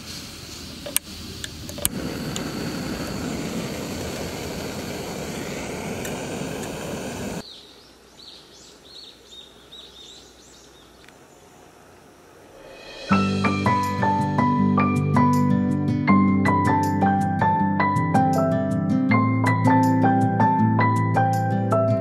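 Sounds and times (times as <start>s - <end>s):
gas burner rushing: 0.0s - 7.4s
birds chirping: 3.0s - 12.4s
igniter clicking: 5.9s - 7.4s.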